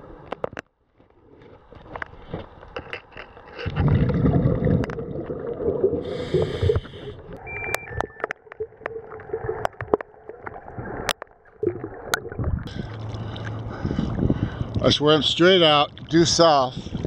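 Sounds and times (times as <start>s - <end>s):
gurgling underwater bubbles: 3.6s - 7.4s, 8.0s - 14.4s.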